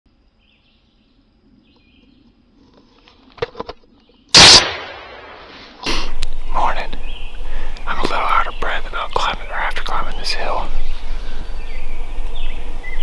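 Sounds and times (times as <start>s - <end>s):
shotgun shot: 4.4s - 6.2s.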